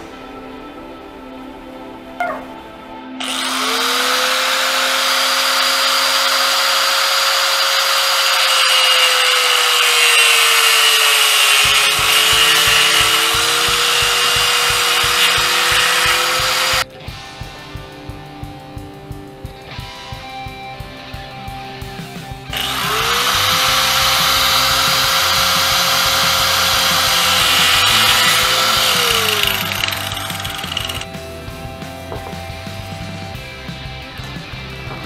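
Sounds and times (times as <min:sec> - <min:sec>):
background music: 0:00.0 - 0:35.0
power saw cutting plastic pipe: 0:03.2 - 0:16.9, 0:22.5 - 0:31.1.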